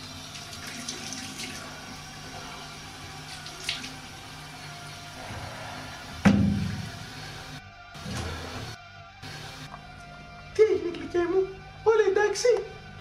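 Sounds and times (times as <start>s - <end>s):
sink tap running: 0.0s - 5.2s, 6.0s - 9.6s
hands washing under water: 3.2s - 4.3s
loud thump: 6.2s - 6.9s.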